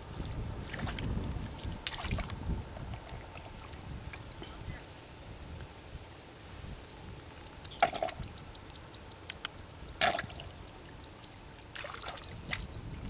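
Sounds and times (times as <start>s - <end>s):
small sharp clicks: 9.1s - 10.2s.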